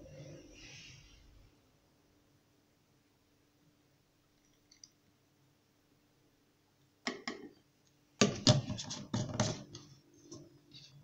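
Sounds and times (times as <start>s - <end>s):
plastic bottles knocking and rattling: 8.2s - 9.8s.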